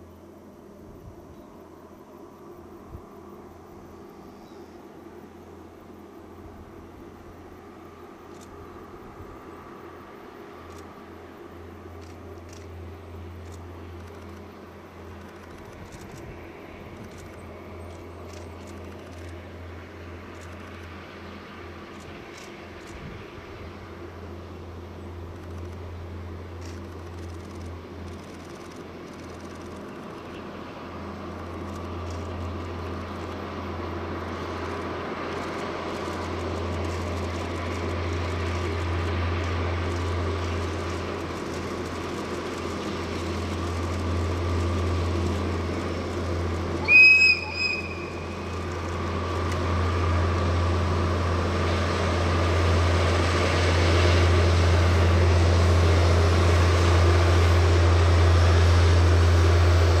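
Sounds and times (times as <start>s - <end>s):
diesel train engine and rail noise: 0.0s - 60.0s
high-pitched train whistle: 46.8s - 48.5s.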